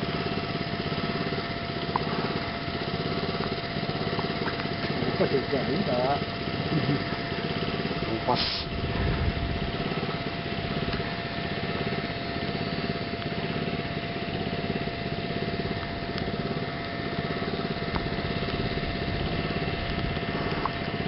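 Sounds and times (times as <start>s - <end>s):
small motor droning with whine: 0.0s - 21.0s
rough noise haze: 7.0s - 21.0s.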